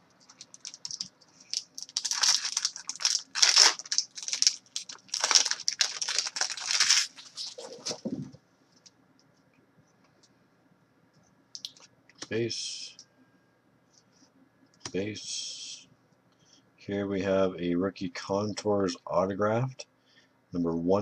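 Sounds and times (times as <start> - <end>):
wrapper crinkling and tearing: 0.2 - 8.0.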